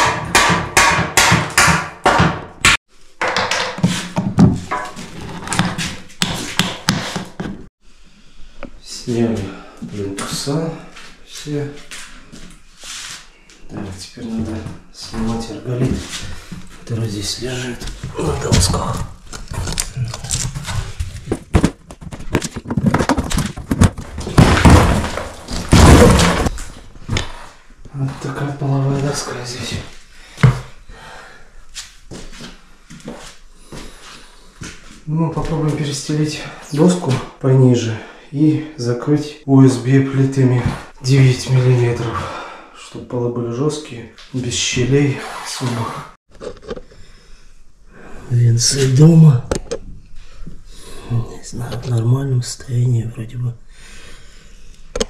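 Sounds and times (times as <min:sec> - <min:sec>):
hammer knocking on wood: 0:00.0 - 0:04.6
hardboard knocking and cracking: 0:00.0 - 0:07.6, 0:17.9 - 0:26.7
hardboard tearing and scraping: 0:03.8 - 0:07.4, 0:18.2 - 0:26.7.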